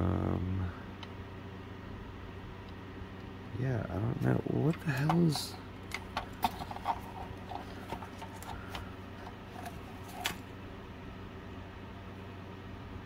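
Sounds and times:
low hum: 0.0 - 13.0
plastic parts clicking: 4.7 - 10.4.

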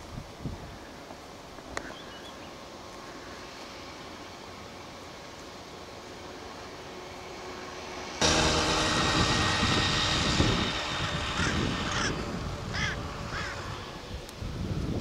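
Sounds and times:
steady rushing noise: 0.0 - 15.0
bird harsh calls: 11.2 - 13.9.

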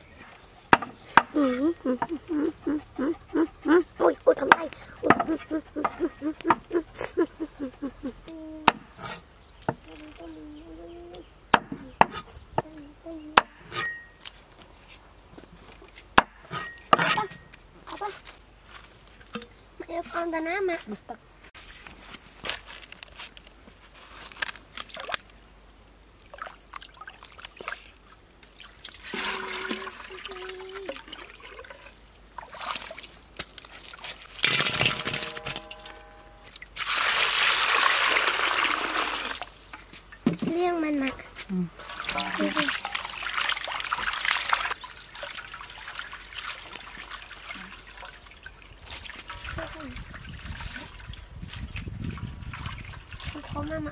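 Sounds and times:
water sloshing and gurgling: 26.2 - 38.4, 41.7 - 53.9
water pouring into metal wok: 29.0 - 31.9, 36.7 - 39.5
faint wavering whine: 34.8 - 36.6.

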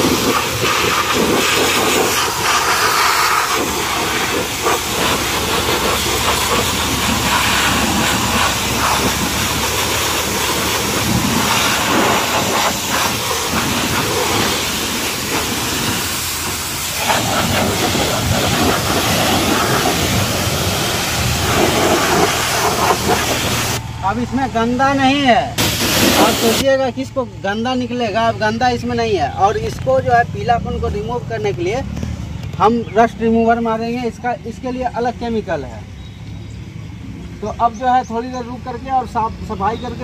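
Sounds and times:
pressure washer spray hiss: 0.0 - 23.8, 25.6 - 26.7.

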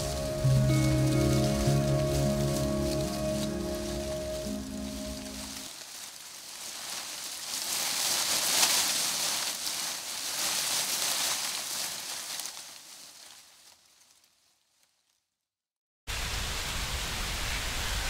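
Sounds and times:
bright rain-like hiss: 0.0 - 14.4, 16.1 - 18.0.

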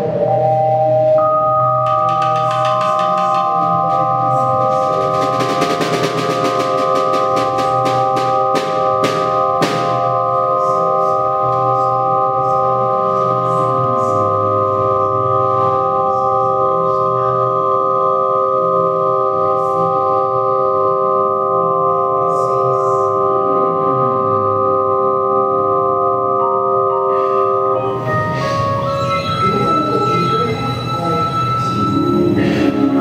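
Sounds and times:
low bass line: 0.0 - 33.0
sustained organ-like keyboard chord: 0.0 - 33.0
drum strokes: 1.7 - 10.6.

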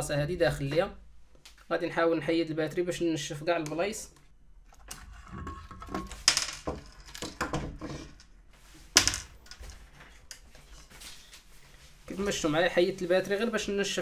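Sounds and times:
clicks scrapes and knocks: 4.7 - 8.4.

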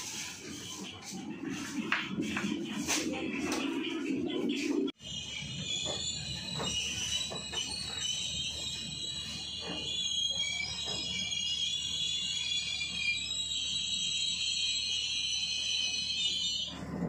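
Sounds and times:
train running rumble: 0.0 - 12.3
train brakes squealing: 5.0 - 17.0.

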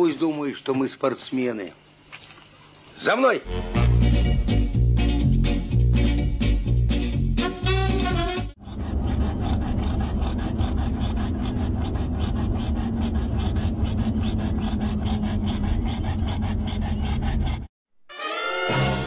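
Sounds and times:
dog panting: 8.6 - 17.7.

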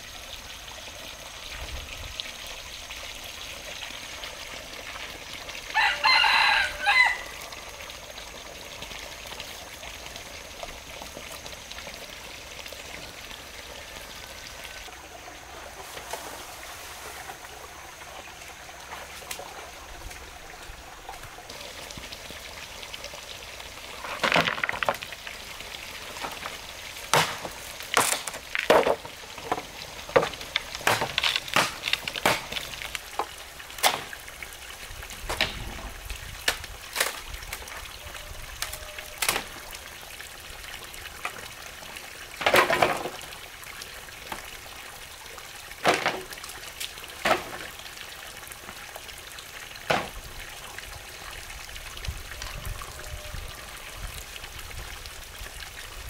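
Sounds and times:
water pouring into pond: 0.0 - 56.0
bamboo poles knocking: 26.2 - 34.2, 47.2 - 47.7.

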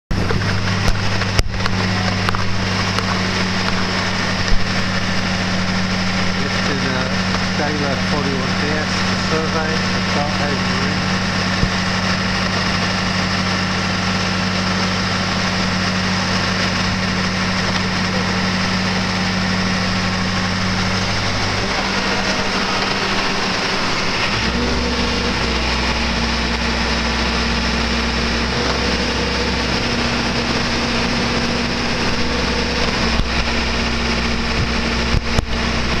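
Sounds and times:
hoist engine running: 0.1 - 36.0.

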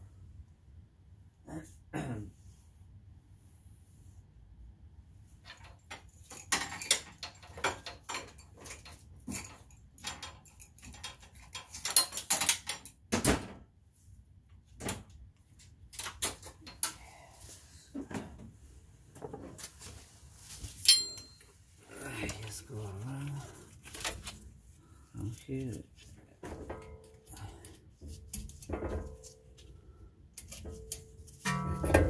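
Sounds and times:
metal tools clicking and scraping: 5.5 - 13.0, 20.8 - 21.5
ringing metallic clink: 20.9 - 21.4.

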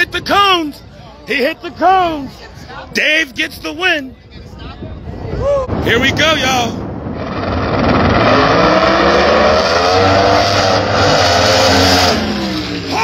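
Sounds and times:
drag cars passing at full throttle: 6.7 - 13.0.

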